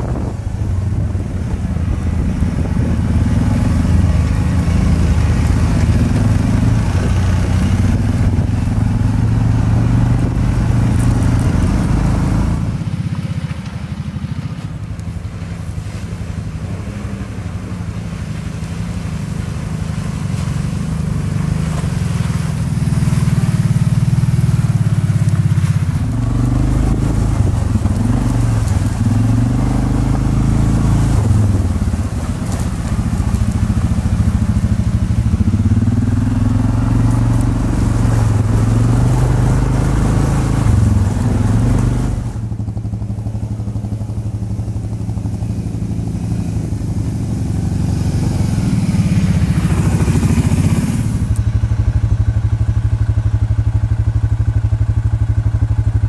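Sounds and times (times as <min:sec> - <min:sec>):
atv engines revving: 0:00.0 - 0:56.0
crackle and clatter from riding: 0:00.8 - 0:09.3, 0:10.1 - 0:16.3, 0:17.1 - 0:56.0.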